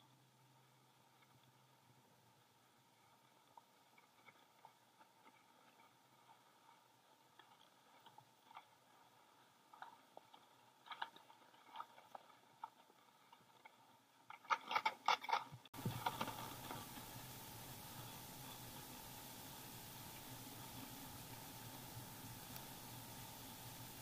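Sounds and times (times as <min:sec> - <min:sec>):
steady hiss: 0:15.8 - 0:24.0.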